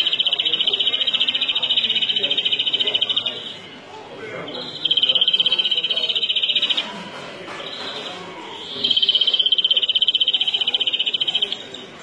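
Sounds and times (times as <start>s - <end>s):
bird singing rapid trills: 0.0s - 3.7s, 4.5s - 6.8s, 8.6s - 12.0s.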